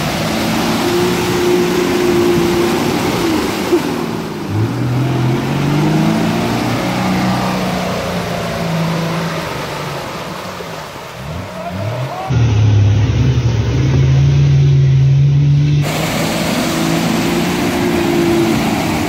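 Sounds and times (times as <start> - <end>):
wheels churning through mud: 0.0 - 19.0
engine revving hard: 4.5 - 8.9.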